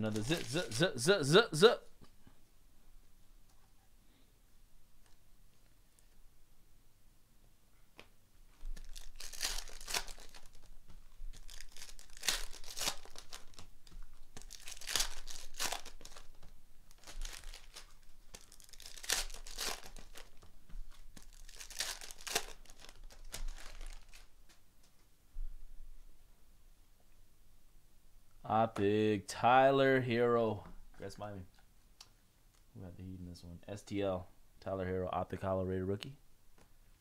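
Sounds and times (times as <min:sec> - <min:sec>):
foil packs tearing and crinkling: 0:08.8 - 0:10.7, 0:11.3 - 0:13.7, 0:14.4 - 0:20.4, 0:21.2 - 0:24.3.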